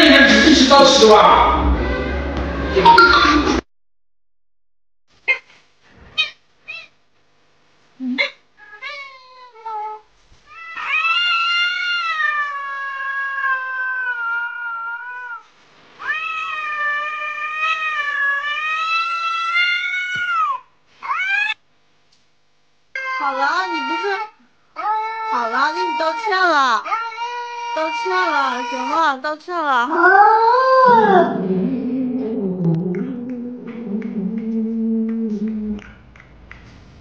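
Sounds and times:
cat yowling: 8.6 - 15.4, 16.0 - 21.6, 23.0 - 28.9, 29.9 - 34.4.

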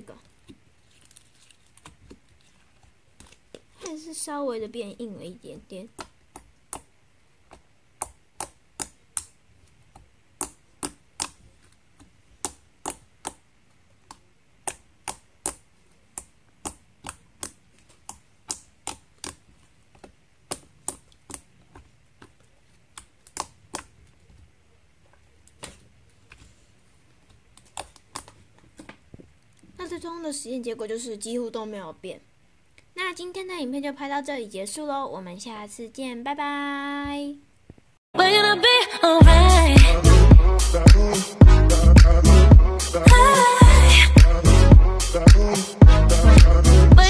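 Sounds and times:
slime clicking and popping: 8.0 - 9.4, 10.4 - 11.4, 14.1 - 19.4.

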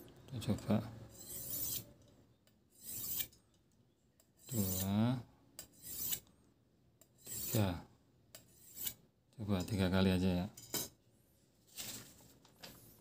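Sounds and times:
knife scraping on metal file: 1.1 - 1.9, 2.7 - 3.4, 4.4 - 5.0, 5.6 - 6.3, 7.1 - 7.7, 8.4 - 9.0.

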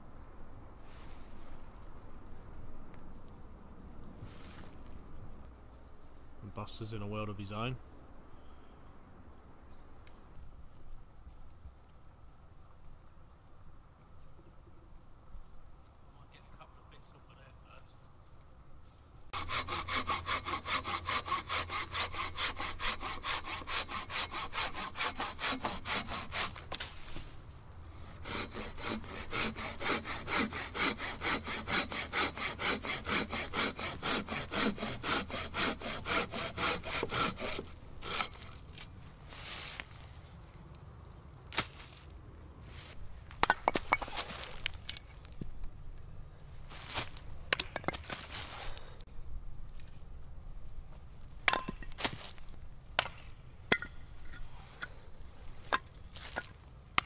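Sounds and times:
hatchet splitting wood: 19.3 - 26.8, 28.2 - 38.9, 43.4 - 44.3
hand saw cutting branch: 19.3 - 27.0, 28.0 - 38.9.

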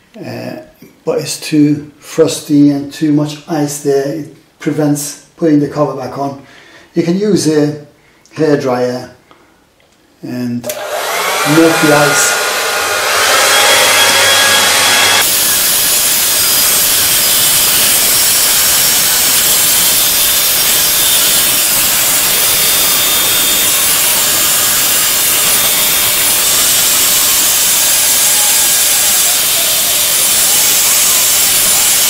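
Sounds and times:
hair dryer blowing: 10.6 - 32.0.

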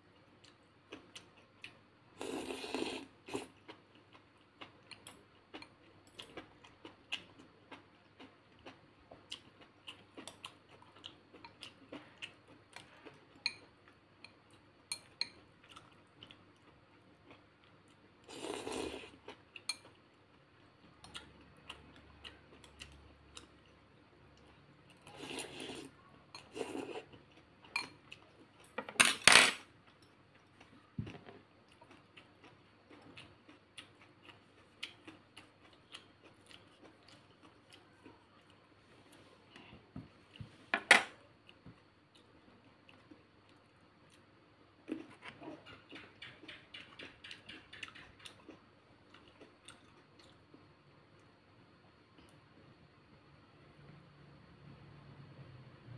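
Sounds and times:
utensils clinking on ceramic bowl: 28.8 - 29.6.

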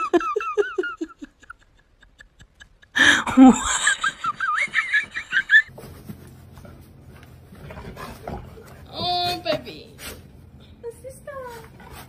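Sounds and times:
people giggling: 0.0 - 5.7.

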